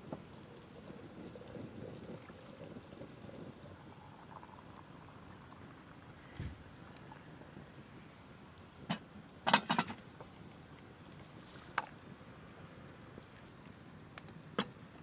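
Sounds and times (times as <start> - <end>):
faint background noise: 0.0 - 15.0.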